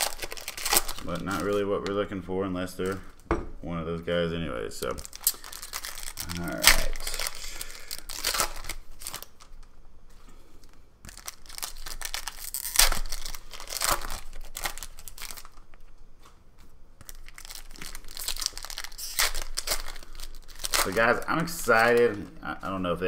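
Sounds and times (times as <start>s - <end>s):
foil wrapper rustling: 0.0s - 2.1s, 4.8s - 9.7s, 10.6s - 15.9s, 17.0s - 22.8s.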